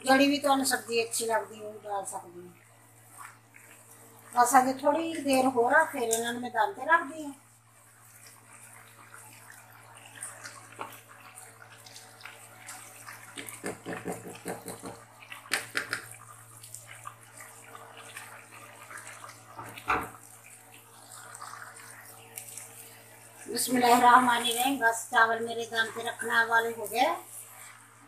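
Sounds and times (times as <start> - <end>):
pot bubbling at the boil: 0.0 - 28.0
spatula knocking on a pan: 13.4 - 16.1.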